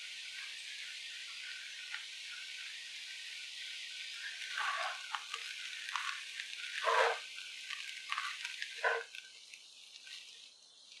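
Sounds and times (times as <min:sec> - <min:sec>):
faint sizzle: 0:00.0 - 0:11.0
wooden spatula scraping rice: 0:06.8 - 0:07.2.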